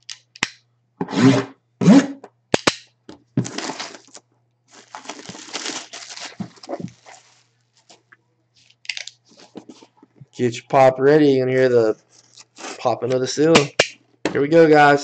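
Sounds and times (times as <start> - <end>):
cardboard scraping: 3.4 - 8.0
plastic wrap rustling: 3.4 - 10.0.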